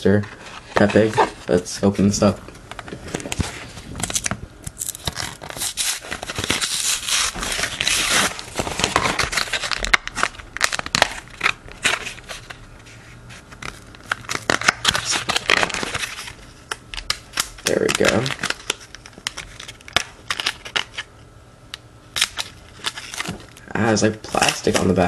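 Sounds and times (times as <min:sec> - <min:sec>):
plastic blister pack crinkling: 0:02.0 - 0:12.6, 0:13.5 - 0:21.1.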